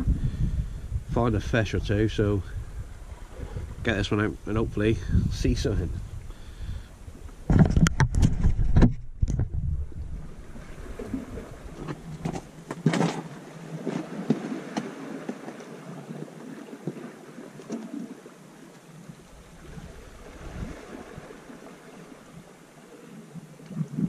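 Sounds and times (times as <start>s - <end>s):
sea noise on rocky shore: 0.0s - 24.0s
steady wind: 0.0s - 24.0s
fishing tackle clicks and knocks: 7.4s - 9.6s.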